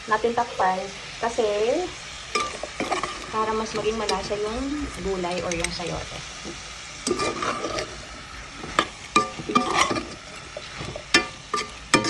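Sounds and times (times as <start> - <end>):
metal spoon stirring in a pot: 2.3 - 4.4, 5.1 - 12.0.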